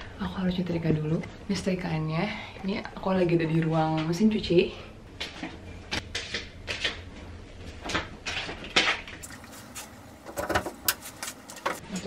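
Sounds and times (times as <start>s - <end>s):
clothes iron being handled: 9.4s - 11.9s.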